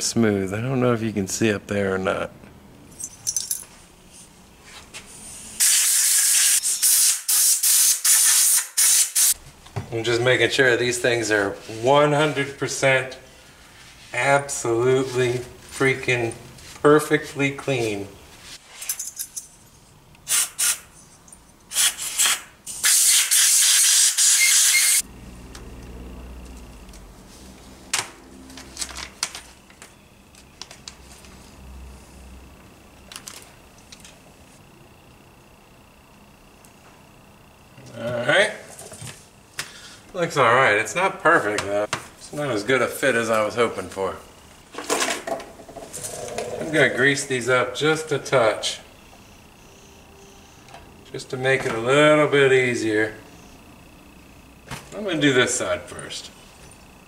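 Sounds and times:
aerosol spraying: 5.6 - 9.4, 20.3 - 20.9, 21.7 - 25.0
compressed air blow gun hissing: 5.6 - 9.4, 20.3 - 20.8, 21.7 - 25.0.

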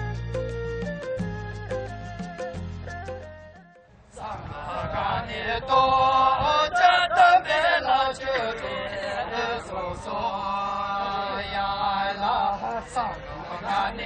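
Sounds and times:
men chanting together: 4.2 - 14.0.

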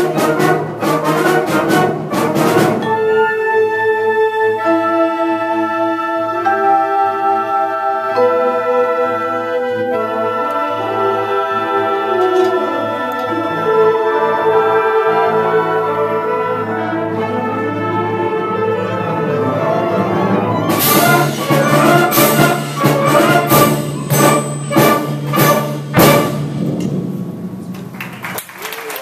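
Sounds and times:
concert band playing: 0.0 - 3.3, 15.2 - 28.4
percussion crashes: 20.7 - 28.8
audience applause: 27.8 - 29.0.

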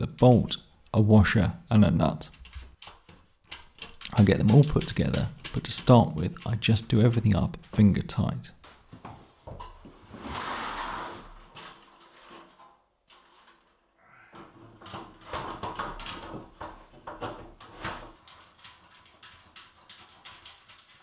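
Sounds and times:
metal frame knocks and clanks: 2.4 - 8.0
steel panel scraping on wood: 10.1 - 13.7.

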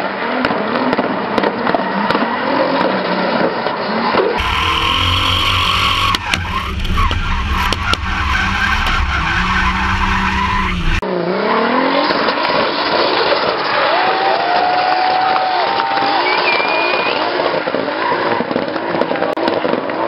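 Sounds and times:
car engine droning and revving: 0.2 - 13.9
tyres skidding: 4.4 - 11.0
wind rumble: 4.4 - 11.0.

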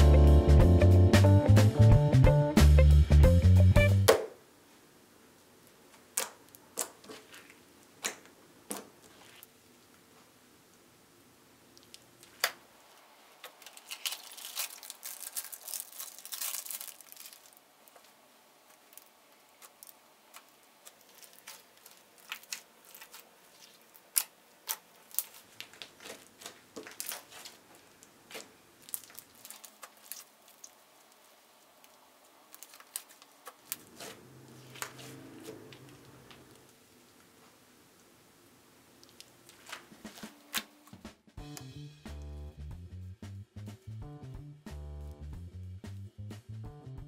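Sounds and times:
slime squelching: 6.2 - 9.5, 18.8 - 36.7.

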